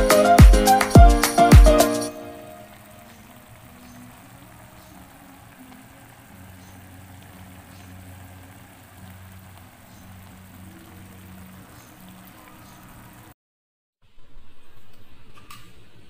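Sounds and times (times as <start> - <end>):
sauce simmering and bubbling: 2.4 - 13.3.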